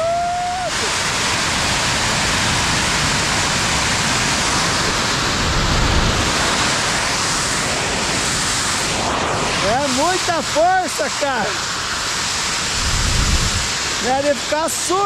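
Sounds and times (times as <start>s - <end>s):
steam vent hissing: 0.0s - 15.0s.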